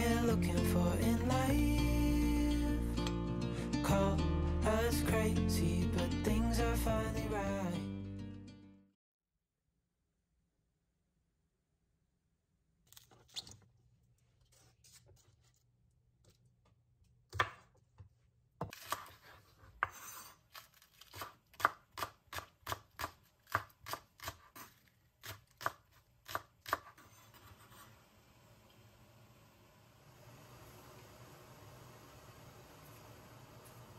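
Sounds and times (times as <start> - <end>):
knife chopping on cutting board: 17.3 - 17.8, 18.6 - 27.6.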